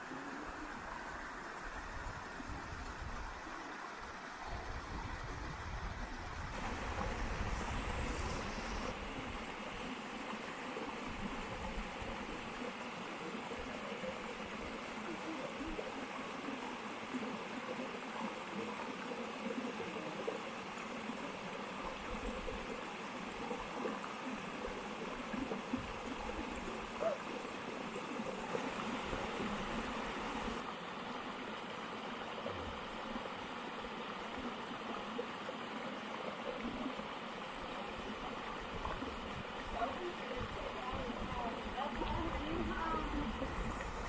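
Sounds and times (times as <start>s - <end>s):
waterfall splashing into pool: 6.6s - 9.9s.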